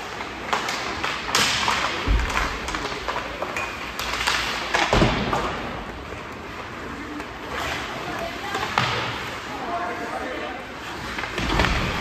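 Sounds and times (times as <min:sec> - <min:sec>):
hockey sticks clacking on puck: 0:00.0 - 0:09.5.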